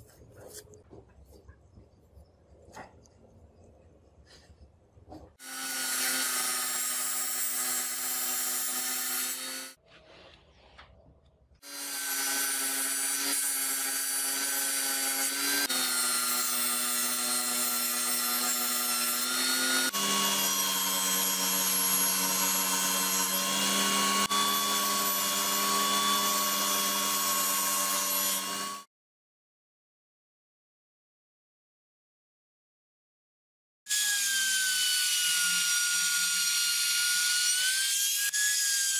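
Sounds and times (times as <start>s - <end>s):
table saw cutting board: 5.1s - 10.4s, 11.6s - 28.9s, 33.9s - 38.9s.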